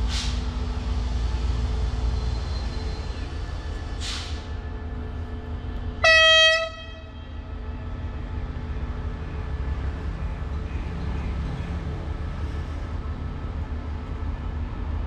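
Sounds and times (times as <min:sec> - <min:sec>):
brief hiss: 0:04.0 - 0:04.5
locomotive air horn blast: 0:06.0 - 0:07.6.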